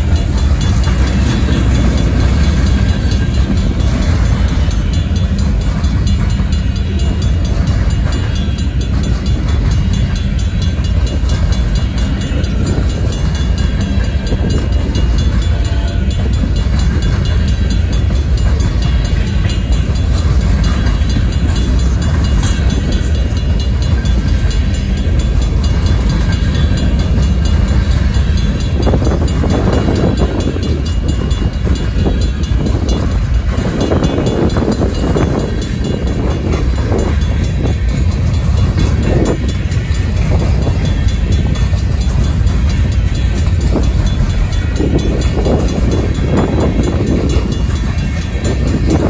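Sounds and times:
train cars rattling and clanking: 0:00.0 - 0:49.0
train wheels rumbling on rail: 0:00.0 - 0:49.0.

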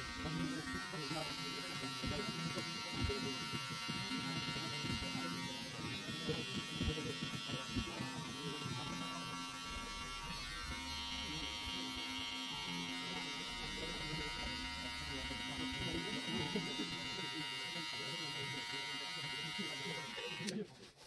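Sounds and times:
hair clipper buzzing: 0:00.0 - 0:20.6.

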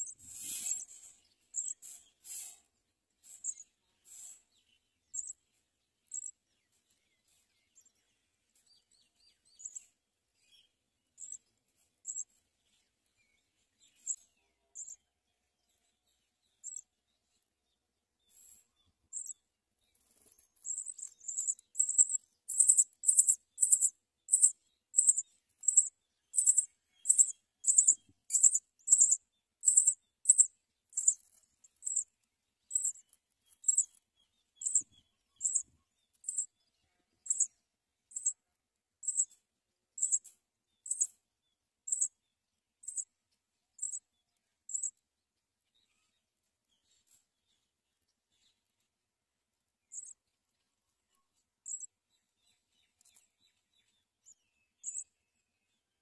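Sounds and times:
nestling birds cheeping: 0:00.0 - 0:02.6, 0:03.2 - 0:05.4, 0:06.1 - 0:06.4, 0:09.3 - 0:09.9, 0:10.5 - 0:12.3, 0:13.8 - 0:15.0, 0:16.5 - 0:16.9, 0:18.3 - 0:38.4, 0:39.0 - 0:39.4, 0:40.0 - 0:41.2, 0:41.9 - 0:42.2, 0:42.8 - 0:43.1, 0:43.8 - 0:44.1, 0:44.7 - 0:45.0, 0:49.9 - 0:50.2, 0:51.6 - 0:55.2.

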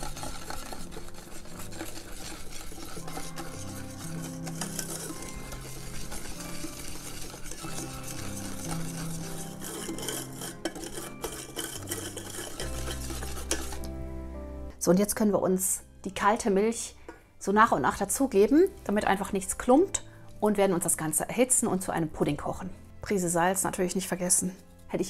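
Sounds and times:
whisk scraping in saucepan: 0:00.0 - 0:13.9
soft background music: 0:00.0 - 0:25.0.

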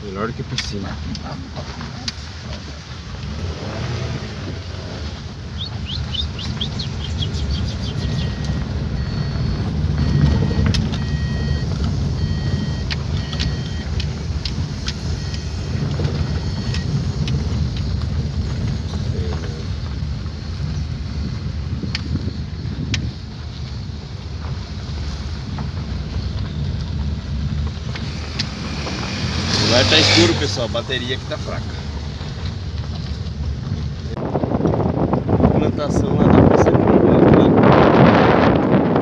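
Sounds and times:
car engine and tyre rumble: 0:00.0 - 0:39.0
high chirps: 0:05.5 - 0:11.6
short high beeps: 0:07.8 - 0:13.9.

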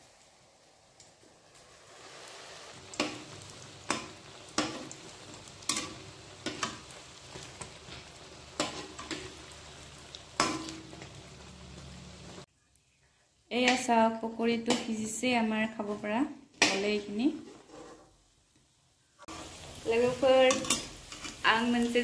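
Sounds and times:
deep-frying sizzle in oil: 0:00.0 - 0:22.0
metal spatula scraping pan: 0:17.3 - 0:18.2.

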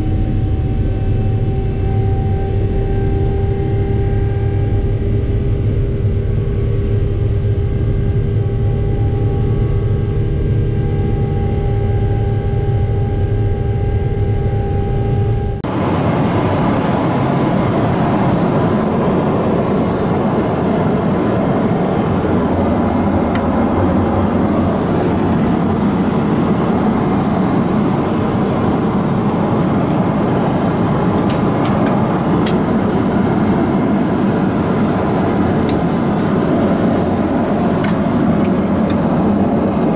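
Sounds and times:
jet engine drone: 0:00.0 - 0:39.9
airliner cabin noise: 0:13.6 - 0:39.9.

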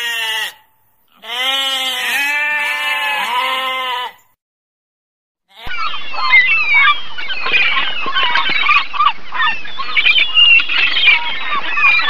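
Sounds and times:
flock of gulls calling: 0:05.6 - 0:12.0.

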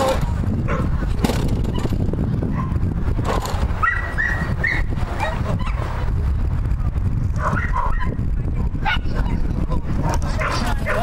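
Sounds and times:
low rumble: 0:00.0 - 0:11.0
dog yipping and barking: 0:03.8 - 0:05.8, 0:07.4 - 0:08.2.

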